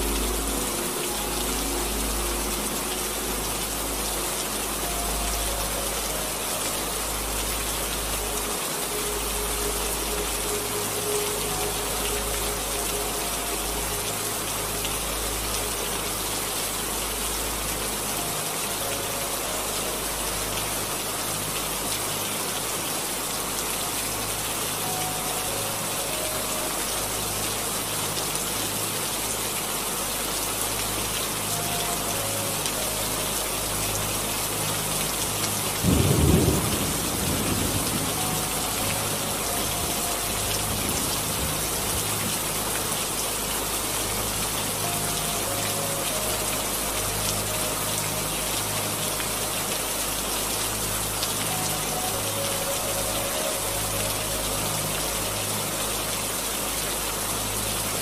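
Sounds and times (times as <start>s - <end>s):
steady rain falling: 0.0s - 58.0s
thunder clap rumbling: 35.9s - 38.5s.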